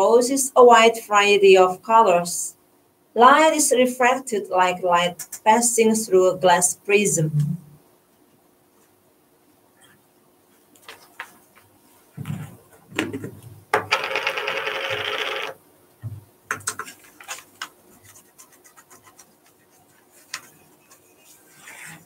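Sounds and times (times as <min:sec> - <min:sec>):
paper and pen handling: 0:16.7 - 0:22.0.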